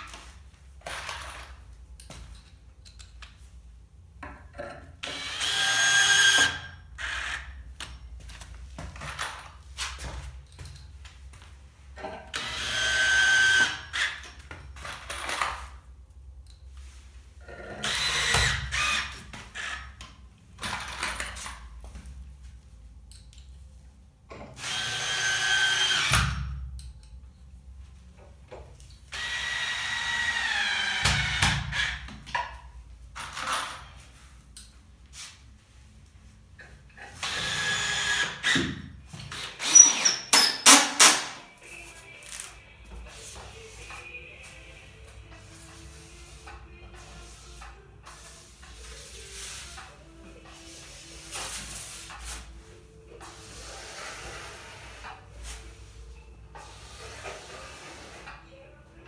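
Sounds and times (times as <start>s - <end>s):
power drill whining: 5.0s - 7.5s, 12.3s - 14.2s, 17.8s - 19.8s, 24.6s - 26.3s, 29.1s - 32.0s, 37.2s - 38.6s.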